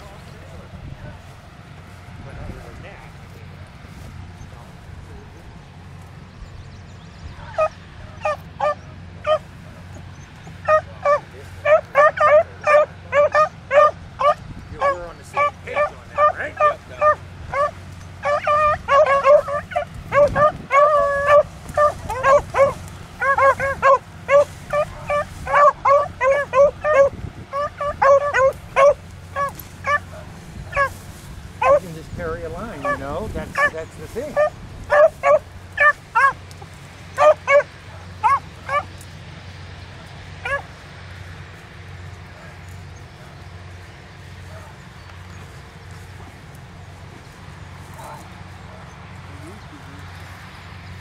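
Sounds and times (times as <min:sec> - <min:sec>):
beagles baying: 0:05.8 - 0:51.0
hound yelping: 0:07.4 - 0:09.5, 0:10.4 - 0:31.0, 0:31.6 - 0:31.8, 0:32.7 - 0:36.4, 0:37.1 - 0:38.9, 0:40.4 - 0:40.7.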